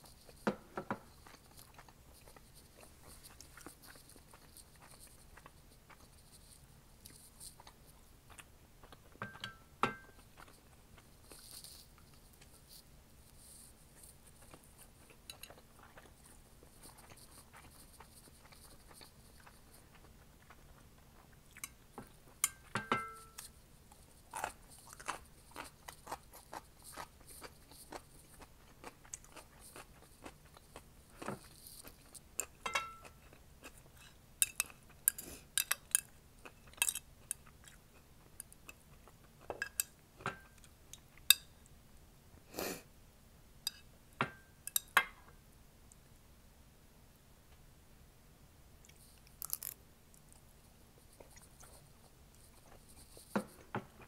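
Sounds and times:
person chewing with mouth sounds: 1.0s - 6.4s, 14.0s - 22.4s, 23.3s - 41.3s.

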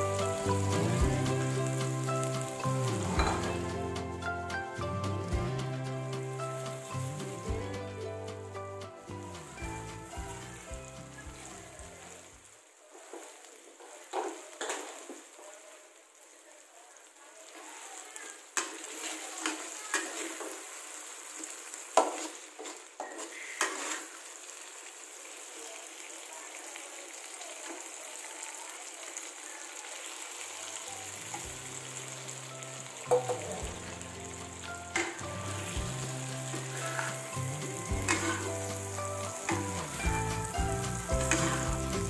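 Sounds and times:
low background music: 0.0s - 12.0s, 32.5s - 42.0s
sauce sizzling in a wok: 0.0s - 42.0s
metal ladle scraping: 34.9s - 39.7s, 41.2s - 42.0s.

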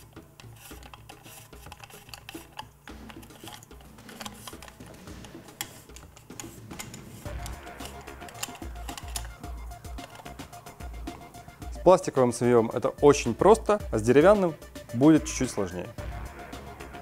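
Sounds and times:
wrench clicking on metal nut: 0.4s - 9.4s.

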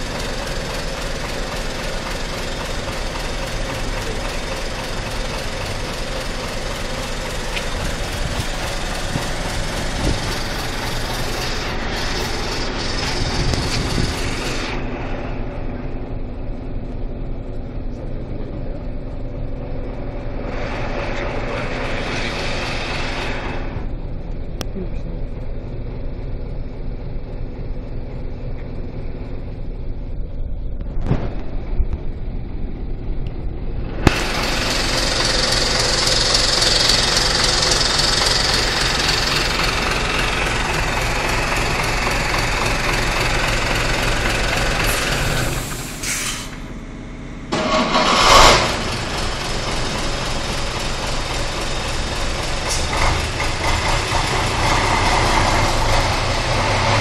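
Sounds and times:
bus diesel engine running: 0.0s - 57.0s.

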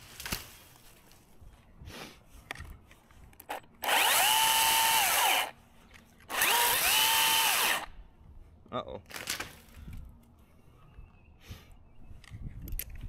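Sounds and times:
branches clicking and crackling: 0.0s - 1.3s, 9.0s - 10.4s
battery chainsaw motor whine: 3.8s - 5.5s, 6.3s - 7.9s.

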